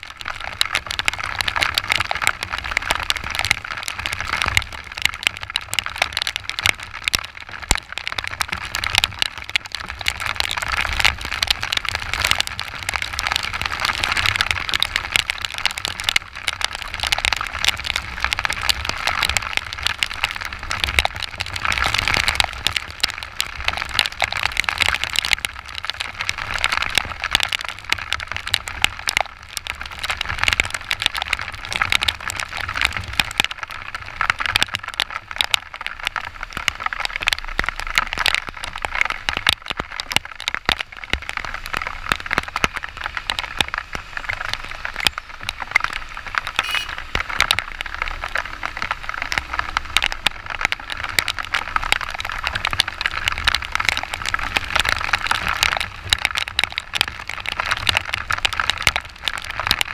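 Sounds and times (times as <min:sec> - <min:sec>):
heavy rain hitting camera: 0:00.0 - 0:59.9.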